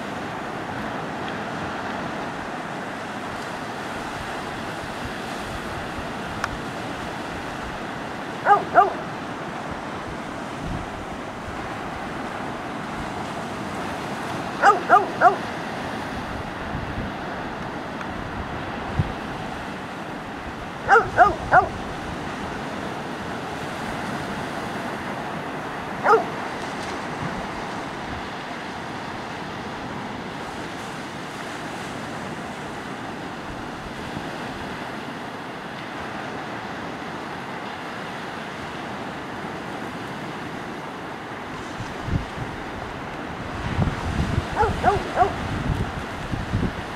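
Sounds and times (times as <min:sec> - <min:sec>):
dog barking: 0:08.4 - 0:09.2, 0:14.6 - 0:15.6, 0:20.8 - 0:21.9, 0:26.0 - 0:26.5, 0:44.5 - 0:45.5.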